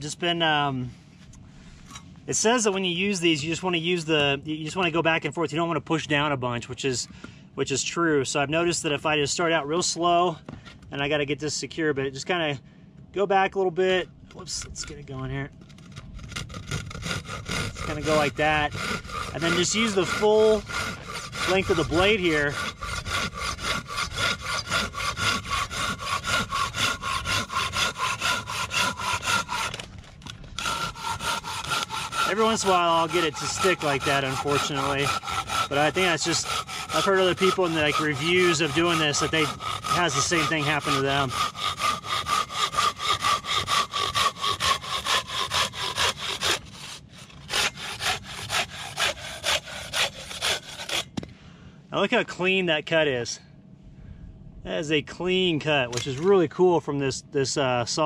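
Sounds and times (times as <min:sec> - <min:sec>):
hand saw cutting log: 0:14.3 - 0:51.2, 0:55.9 - 0:56.5.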